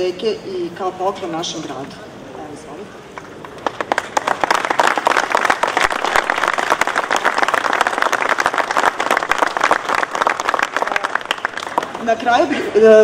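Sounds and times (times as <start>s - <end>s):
crowd applauding: 3.4s - 12.1s.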